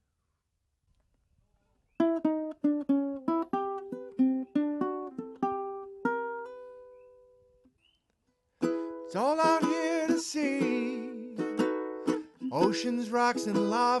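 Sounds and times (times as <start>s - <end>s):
ukulele plucked notes: 2.0s - 7.0s, 8.6s - 14.0s.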